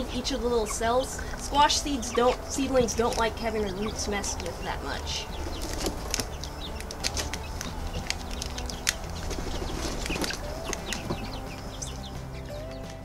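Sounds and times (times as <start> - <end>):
plastic seedling tray crackling: 2.4 - 12.0.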